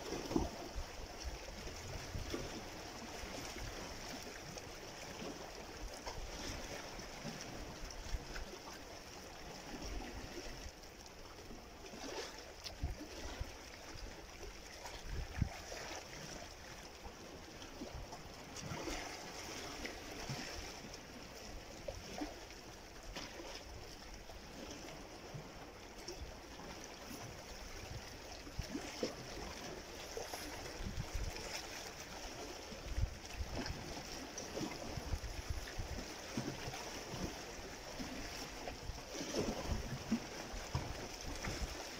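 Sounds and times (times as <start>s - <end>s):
sea waves splashing against rocks: 14.7s - 22.5s, 23.1s - 41.9s.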